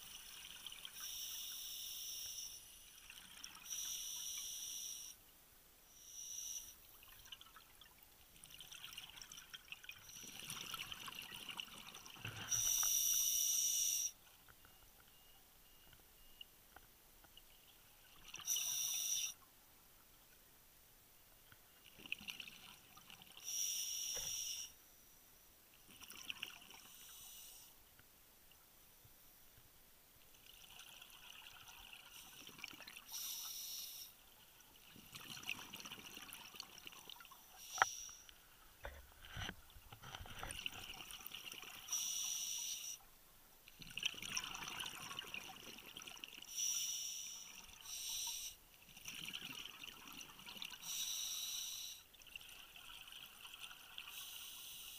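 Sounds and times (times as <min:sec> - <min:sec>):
regulator hissing inhalations: 0:33.1 - 0:34.2, 0:46.5 - 0:48.6, 0:50.8 - 0:52.1, 0:54.1 - 0:54.9.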